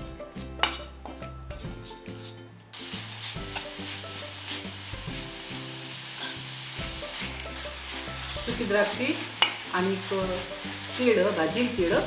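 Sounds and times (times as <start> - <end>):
background music: 0.0 - 12.0
food sizzling: 2.2 - 12.0
metal spoon scraping steel pan: 6.2 - 6.5, 9.3 - 9.7.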